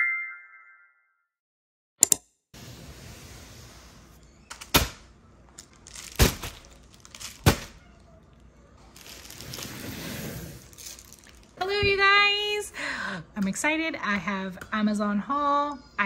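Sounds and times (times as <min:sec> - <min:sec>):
plastic bubble mailer crinkling: 0:05.5 - 0:11.8.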